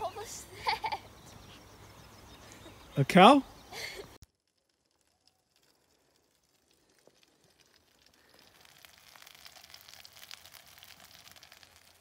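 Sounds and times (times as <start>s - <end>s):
sausages sizzling in a frying pan: 6.8s - 12.0s.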